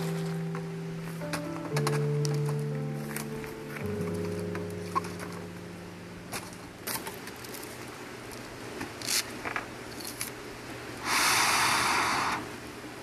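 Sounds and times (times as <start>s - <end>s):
loud hiss: 11.0s - 12.8s.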